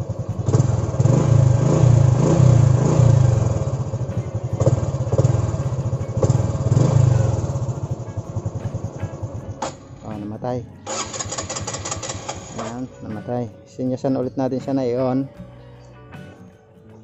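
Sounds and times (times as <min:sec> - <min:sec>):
motorcycle engine running: 0:00.0 - 0:13.1.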